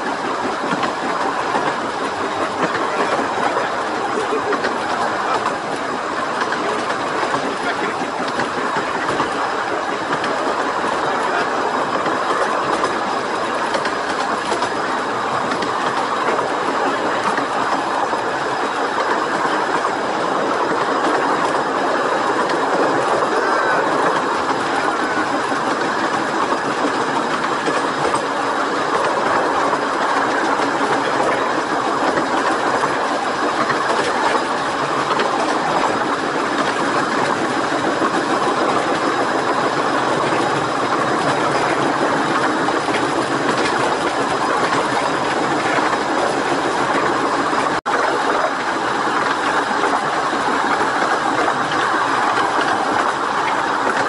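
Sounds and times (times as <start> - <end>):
train wheels on rails: 0.0 - 54.0.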